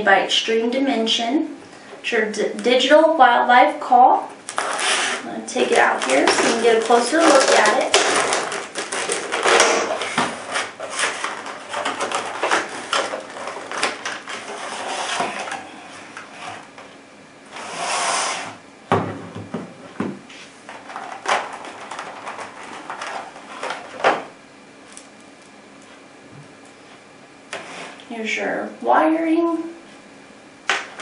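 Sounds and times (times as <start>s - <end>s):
plastic packaging crackling: 4.4s - 16.7s, 20.7s - 25.3s
scraping rustle: 4.6s - 16.7s.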